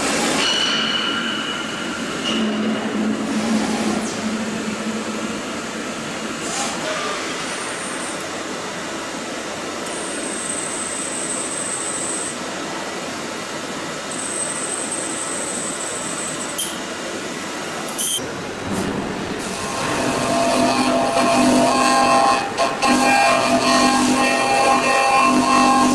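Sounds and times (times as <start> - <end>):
machine and coolant hiss: 0.0 - 25.9
milling machine hum: 0.0 - 25.9
high drill whine: 19.4 - 25.9.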